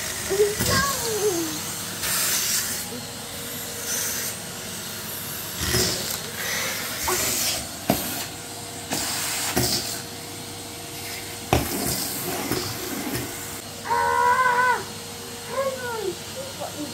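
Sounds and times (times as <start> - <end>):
vacuum cleaner running: 0.0 - 16.9.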